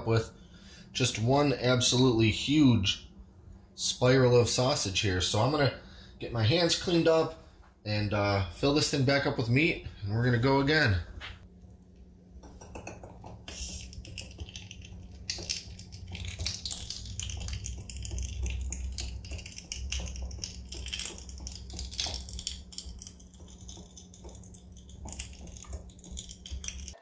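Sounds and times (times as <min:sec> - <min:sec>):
steady low hum: 0:00.0 - 0:27.0
sausage stuffer squelching and clicking: 0:11.9 - 0:27.0.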